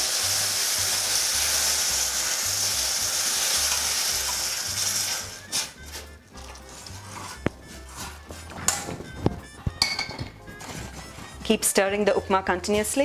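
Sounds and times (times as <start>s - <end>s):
hot water sizzling in a pan: 0.0s - 8.2s
ladle stirring: 3.3s - 11.6s.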